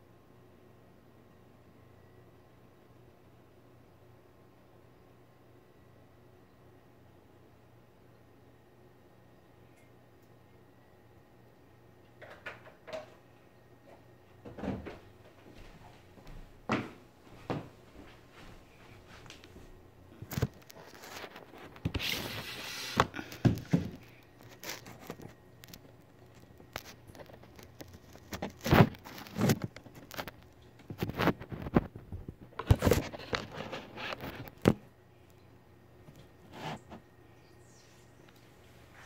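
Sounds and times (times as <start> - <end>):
kitchen knocks and clatters: 12.2 - 13.2
rustling tearing sound: 20.2 - 31.9.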